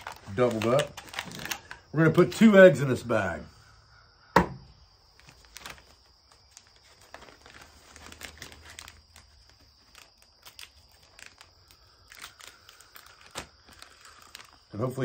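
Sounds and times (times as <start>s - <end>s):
plastic bag crinkling: 0.0s - 1.9s, 5.2s - 15.0s.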